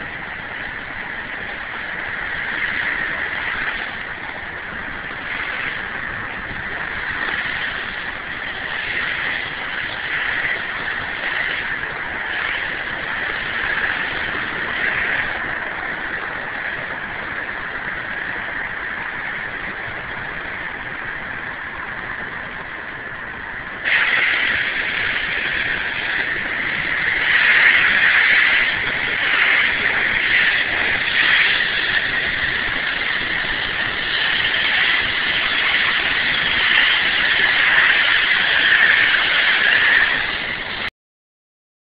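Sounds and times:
pressure washer jet hissing: 0:23.7 - 0:40.9.

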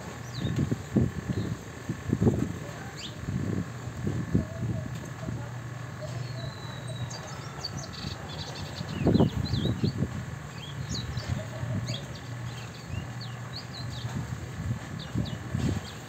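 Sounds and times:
songbird chirping and whistling: 0:06.2 - 0:10.0.

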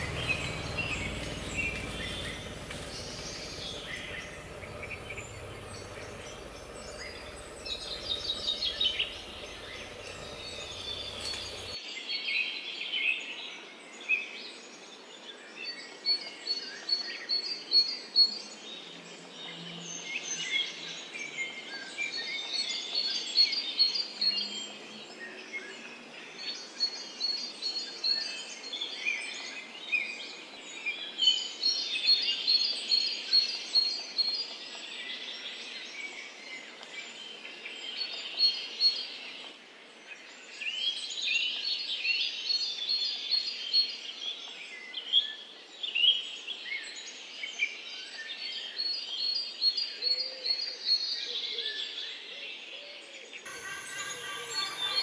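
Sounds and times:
birds singing and calling: 0:00.0 - 0:11.8
faint steady hiss: 0:00.0 - 0:11.8.

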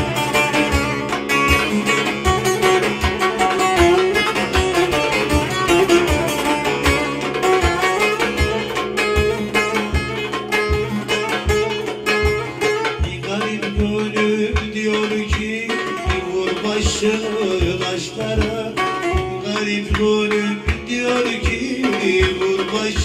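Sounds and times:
electric long-necked lute plucked: 0:00.0 - 0:23.0
low drum beat: 0:00.0 - 0:23.0
man singing: 0:12.8 - 0:23.0.

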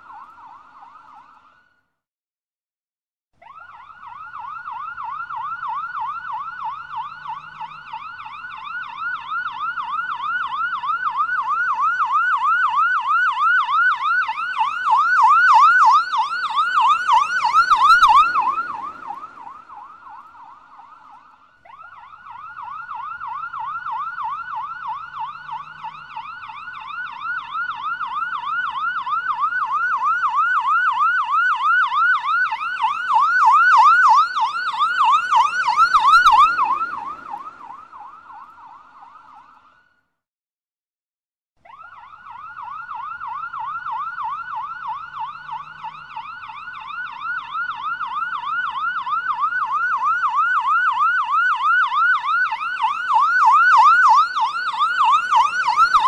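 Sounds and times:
police siren yelping: 0:00.0 - 0:01.6, 0:03.4 - 0:39.8, 0:41.6 - 0:56.0.

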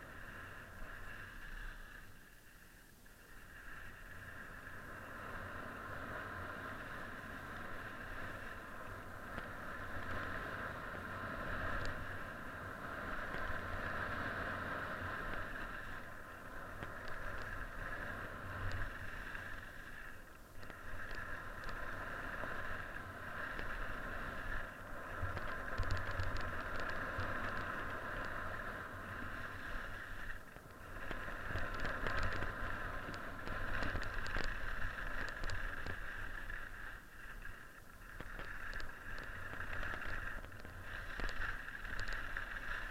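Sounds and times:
skis hissing on snow: 0:00.0 - 0:09.0
wind rumbling on microphone: 0:00.0 - 0:42.9.

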